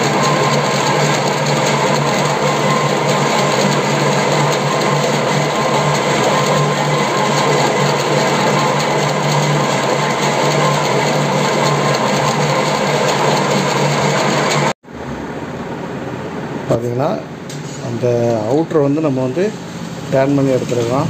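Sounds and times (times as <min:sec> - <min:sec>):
metal lathe running: 0:00.0 - 0:14.8.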